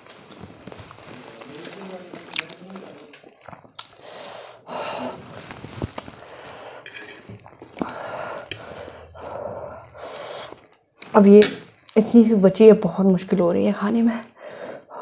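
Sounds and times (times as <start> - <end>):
noisy breathing: 3.9 - 10.8, 14.4 - 15.0
fork clinking and scraping on plate: 6.8 - 7.6.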